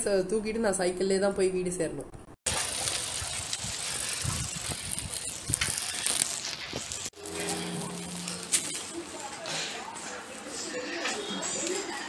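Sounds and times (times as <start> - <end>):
bicycle freewheel ticking: 2.5 - 9.2
bicycle parts rattling: 2.5 - 9.5.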